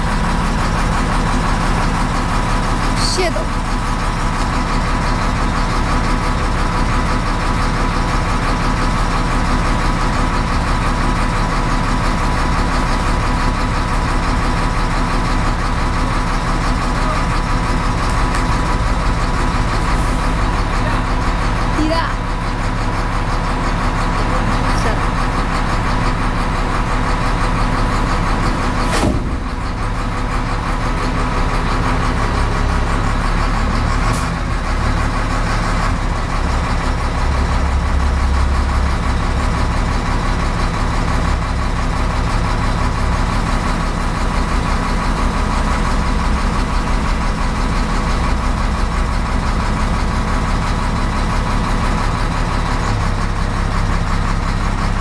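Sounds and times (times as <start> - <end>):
wheel loader diesel engine: 0.0 - 55.0
sharp knock: 28.8 - 29.5.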